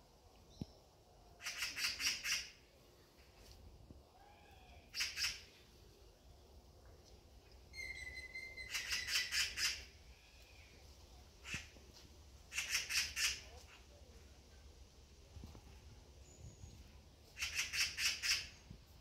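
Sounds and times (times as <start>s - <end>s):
bird calling loudly: 7.7s - 9.9s, 12.5s - 13.8s, 17.3s - 18.6s.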